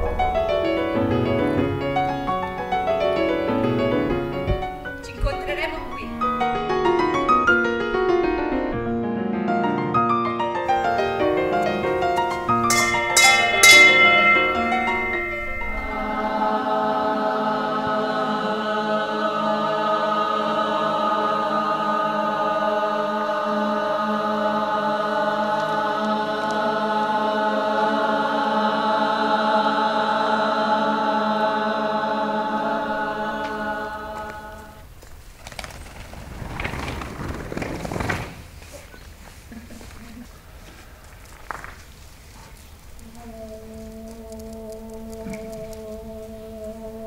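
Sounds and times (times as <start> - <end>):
bright piano notes: 0.0 - 18.0
choir holding a sustained chord: 10.7 - 35.0, 43.0 - 47.0.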